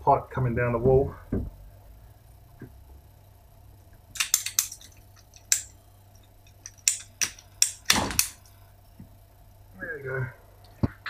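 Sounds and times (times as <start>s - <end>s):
pipe cutter clicking and snapping: 4.2s - 5.7s, 6.6s - 8.4s.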